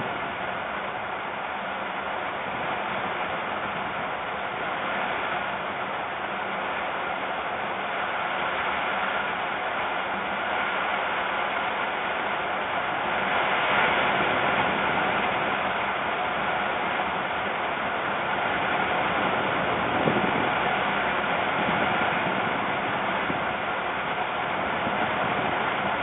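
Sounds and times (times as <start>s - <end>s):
strong wind rushing: 18.2s - 26.0s.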